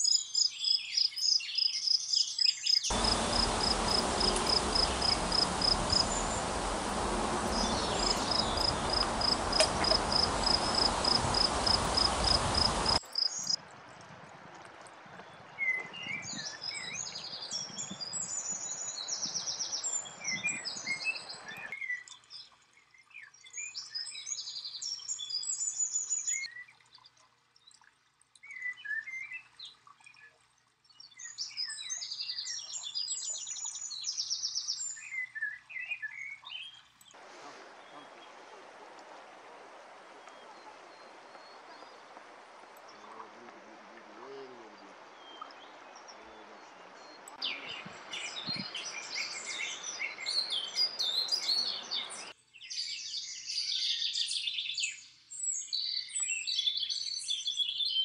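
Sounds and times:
songbird chirping and trilling: 0.0 - 13.6, 30.9 - 36.9, 40.0 - 58.0
loud steady hiss: 2.9 - 13.5, 37.2 - 52.3
fast high chirps: 2.9 - 13.6.

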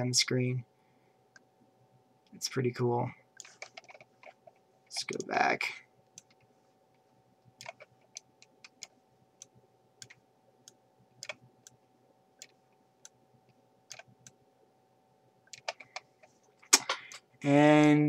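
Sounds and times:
computer mouse clicks: 3.4 - 5.3, 7.5 - 11.8, 13.9 - 14.4, 15.5 - 16.4.

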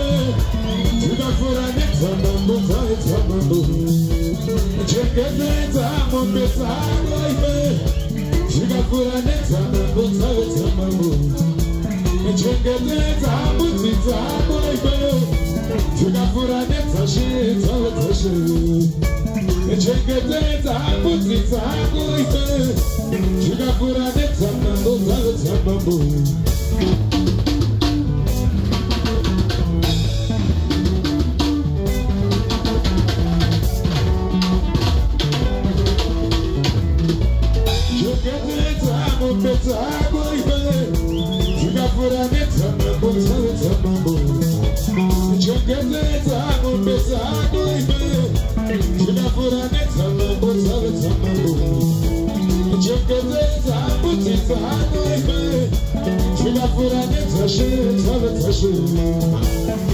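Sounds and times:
drum kit beat: 0.0 - 59.9
electric bass line: 0.0 - 59.9
electric guitars: 0.0 - 59.9.

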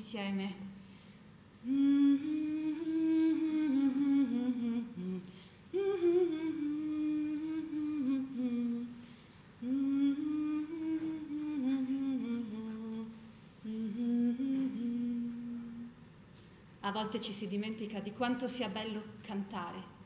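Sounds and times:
woman humming: 1.6 - 9.0, 9.6 - 16.0.

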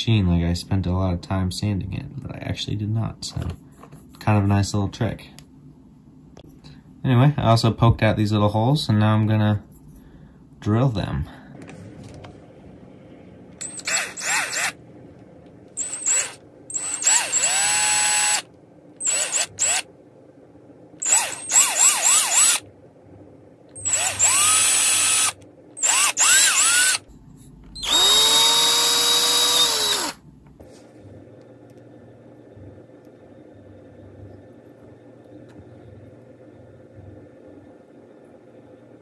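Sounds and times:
cordless drill boring wood: 13.6 - 14.8, 15.8 - 19.8, 21.0 - 22.6, 23.8 - 27.0, 27.8 - 30.2.

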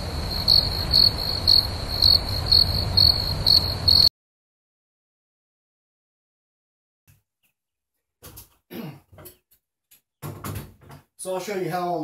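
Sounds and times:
insects trilling: 0.0 - 4.1.

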